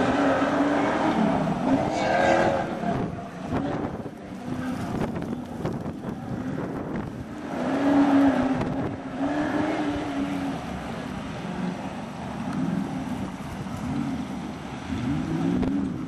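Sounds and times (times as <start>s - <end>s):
engine revving: 0.0s - 5.1s, 6.4s - 16.0s.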